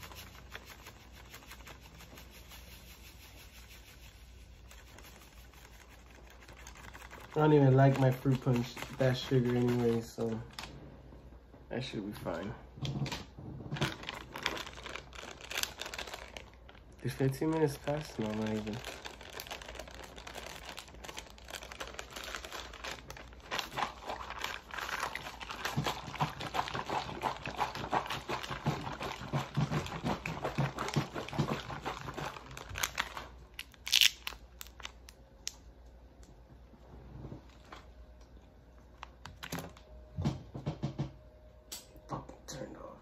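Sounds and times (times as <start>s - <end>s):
plastic packaging crinkling: 0.0s - 10.7s, 13.6s - 35.6s.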